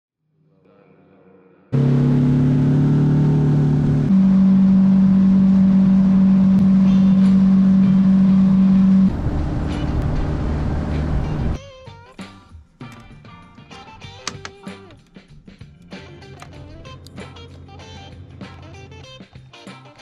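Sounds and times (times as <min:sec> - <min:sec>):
outboard motor running: 0:01.8 - 0:11.6, 0:16.7 - 0:19.0.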